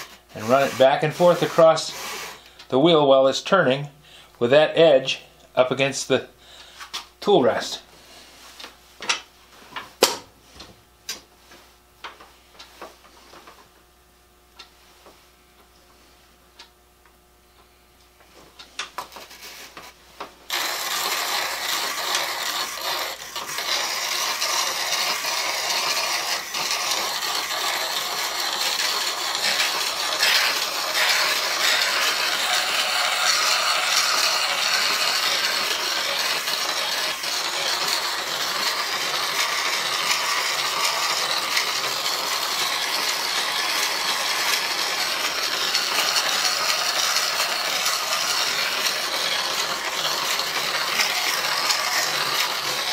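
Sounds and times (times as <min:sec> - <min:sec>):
steel grinding on stone wheel: 0:00.0 - 0:02.4, 0:20.5 - 0:52.9
treadle mechanism rattling: 0:20.5 - 0:52.9.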